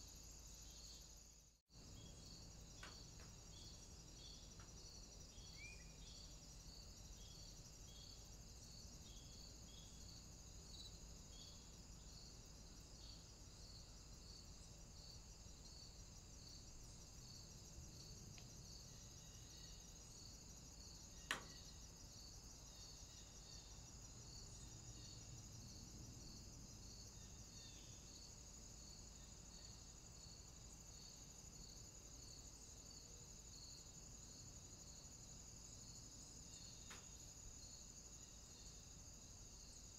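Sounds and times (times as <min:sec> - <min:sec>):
faint high chirping: 0:01.9 - 0:06.4.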